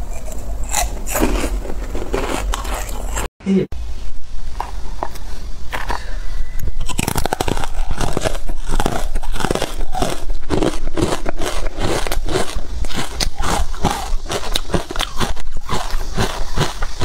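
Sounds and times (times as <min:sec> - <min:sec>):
ice crunching while chewed: 0:00.1 - 0:03.3, 0:06.8 - 0:17.0
biting into ice: 0:06.8 - 0:17.0.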